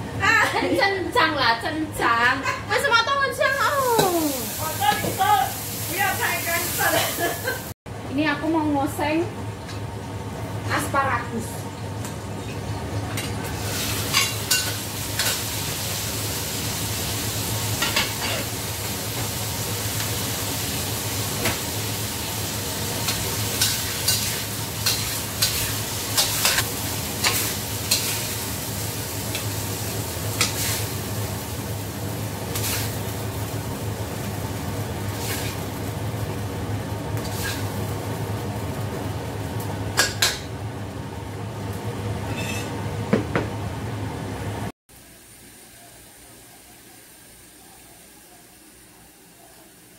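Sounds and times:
food sizzling in a wok: 0.2 - 7.8, 10.7 - 40.6, 44.9 - 49.9
metal ladle scraping a wok: 42.3 - 42.7.

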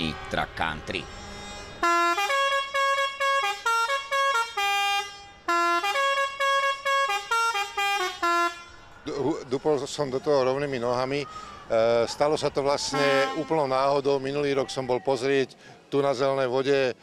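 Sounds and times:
musical truck air horn: 0.0 - 8.8, 12.9 - 13.8.

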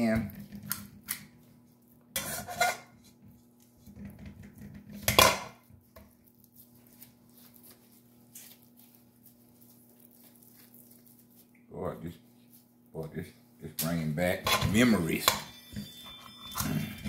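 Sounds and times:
metal scoop scraping a steel bowl: 2.2 - 2.9.

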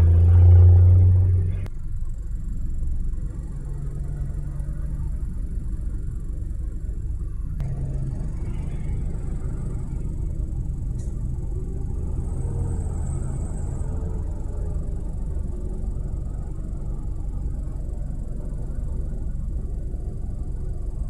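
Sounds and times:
heavy road traffic rumble: 0.0 - 21.0.

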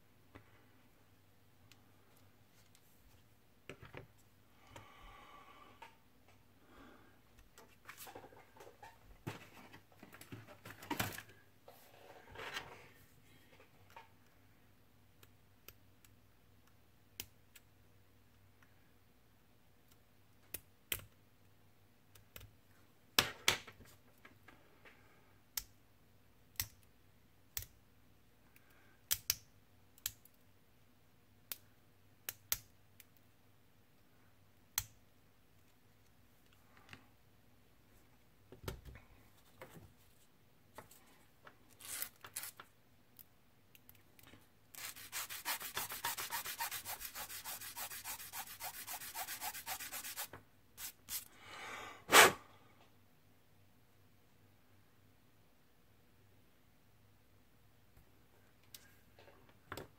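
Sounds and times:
sanding stick rasping: 44.8 - 50.9.

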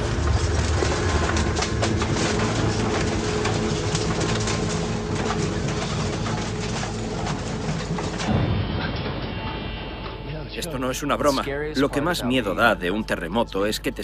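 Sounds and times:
earthquake low rumble: 0.0 - 12.2
rattling and clattering: 0.0 - 12.2.

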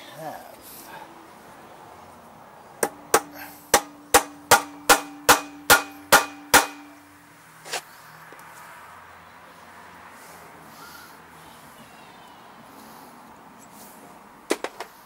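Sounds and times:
hammer striking metal: 2.8 - 7.1.

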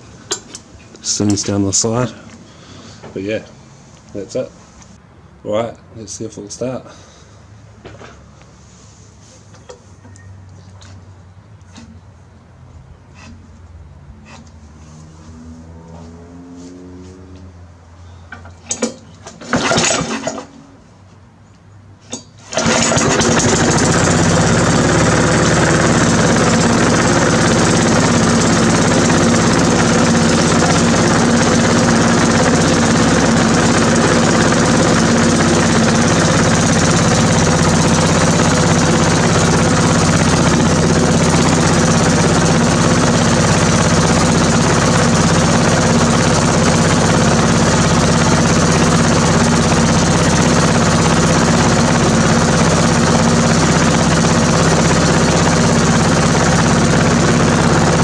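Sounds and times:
lawn mower engine running: 18.4 - 20.7, 22.1 - 58.0.

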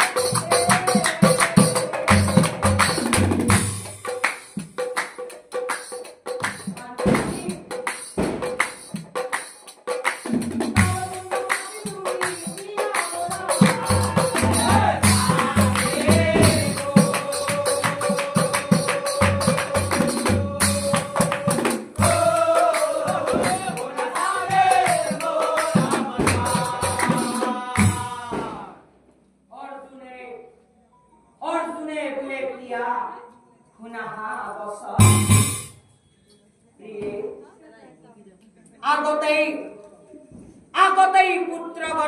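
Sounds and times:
drums beating: 0.0 - 28.7, 35.0 - 35.8
chanted singing: 10.9 - 28.8.

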